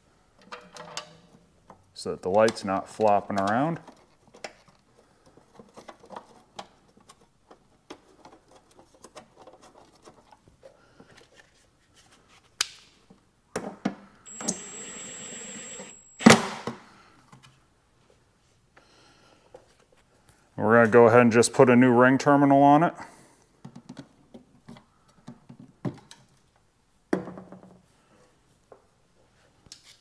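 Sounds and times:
steady whir: 14.3s - 16.6s
loud sharp click: 15.9s - 16.7s.

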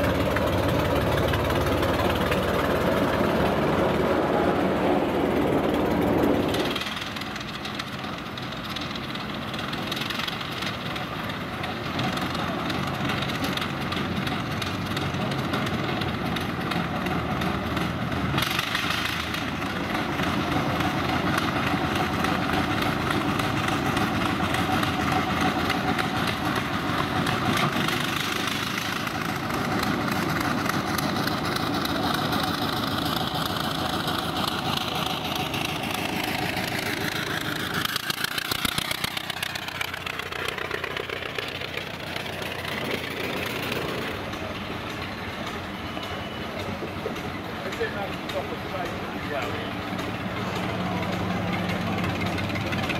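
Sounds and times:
locomotive engine running: 0.0s - 52.9s
wagons rumbling on rails: 0.0s - 52.9s.

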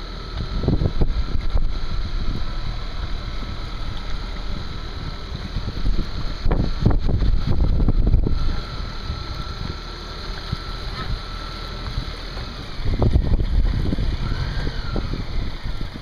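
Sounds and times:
outboard motor running: 0.0s - 16.0s
wind buffeting microphone: 0.3s - 16.0s.

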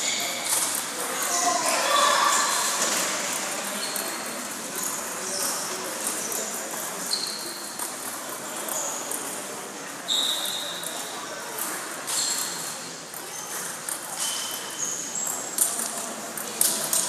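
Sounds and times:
murmur of voices: 0.0s - 17.0s
table tennis balls clicking: 13.1s - 14.5s.

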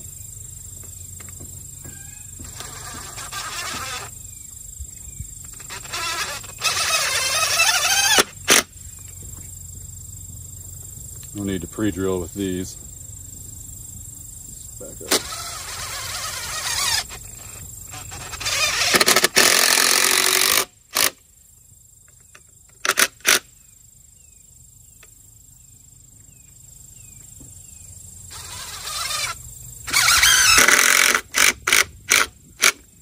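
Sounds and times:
cordless drill drilling into wood: 2.4s - 4.1s, 5.6s - 8.7s, 15.1s - 17.2s, 17.9s - 21.2s, 28.3s - 32.8s.

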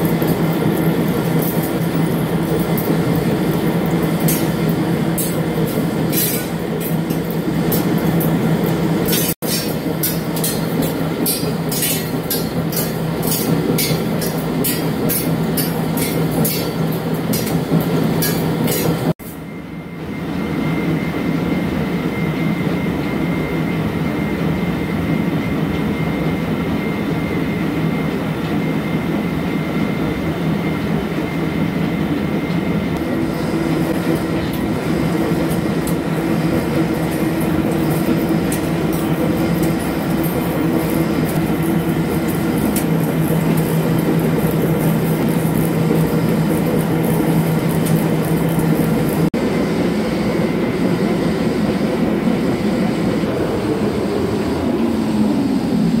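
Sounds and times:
clatter of steel chips: 0.0s - 8.3s, 9.1s - 17.6s, 37.0s - 49.3s
thin steady machine whine: 0.0s - 56.0s
lathe cutting steel: 33.0s - 49.3s.

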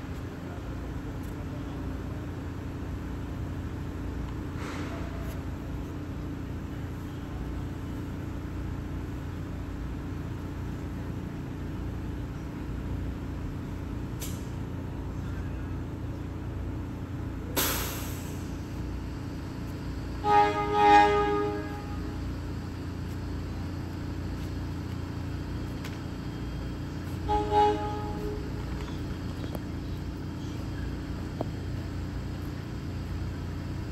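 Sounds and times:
low train rumble: 0.0s - 33.9s
train horn chord: 20.2s - 22.3s, 27.1s - 28.7s.

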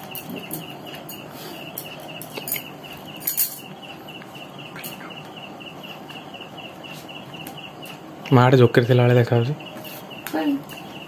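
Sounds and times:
insect chirping: 0.1s - 8.0s.

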